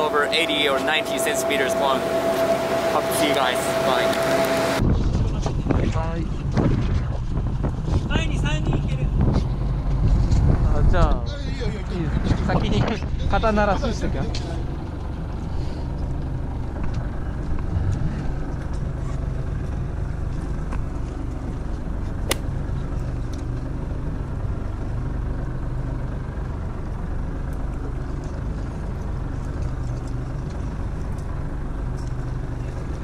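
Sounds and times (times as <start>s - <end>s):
boat engine humming: 0.0s - 4.8s, 14.4s - 33.0s.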